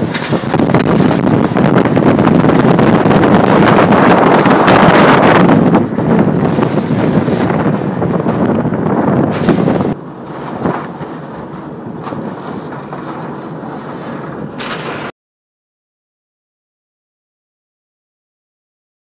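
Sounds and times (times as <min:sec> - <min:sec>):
wind buffeting microphone: 0:00.0 - 0:15.1
boat under way: 0:00.0 - 0:15.2.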